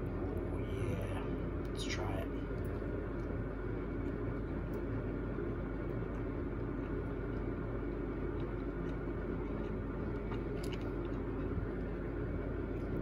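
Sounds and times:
background hum and hiss: 0:00.0 - 0:13.0.

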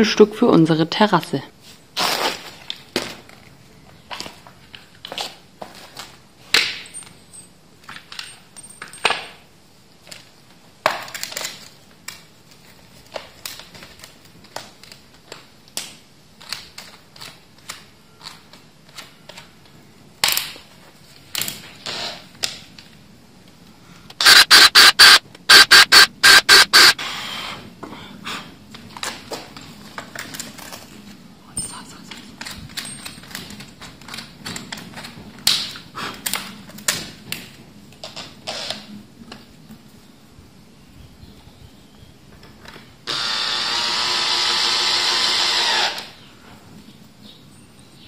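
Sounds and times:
cordless driver driving screws: 0:24.2 - 0:27.0, 0:43.1 - 0:46.1.

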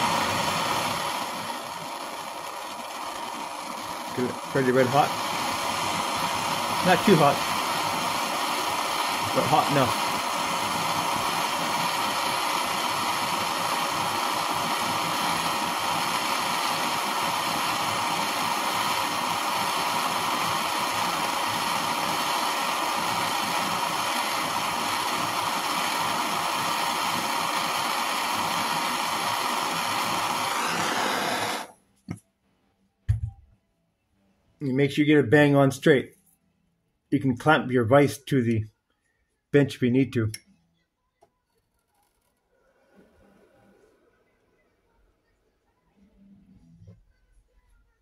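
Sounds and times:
gas torch burning: 0:00.0 - 0:31.8.

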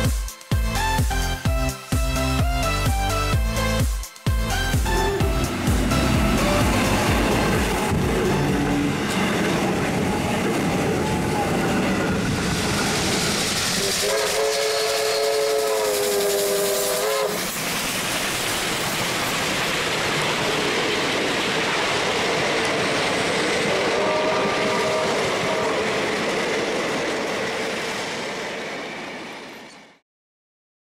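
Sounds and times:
steam train passing: 0:00.0 - 0:30.0
steam whistle: 0:13.2 - 0:17.8, 0:23.7 - 0:26.2.

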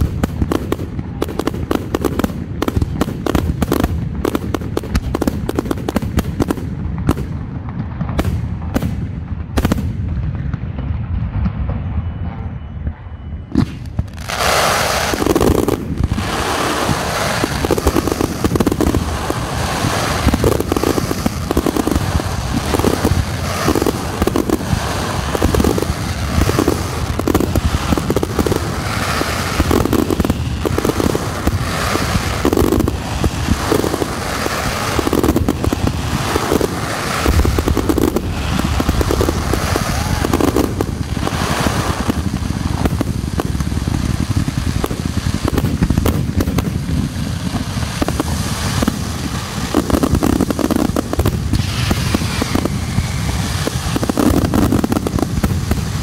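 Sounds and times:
fireworks crackling: 0:00.0 - 0:12.0, 0:13.5 - 0:56.0
firework shells launching and bursting: 0:13.5 - 0:56.0.

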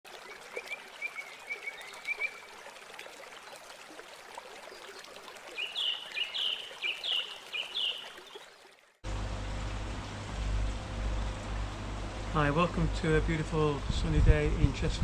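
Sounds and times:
water trickling: 0:00.1 - 0:13.2
bird chirping: 0:05.6 - 0:08.4.

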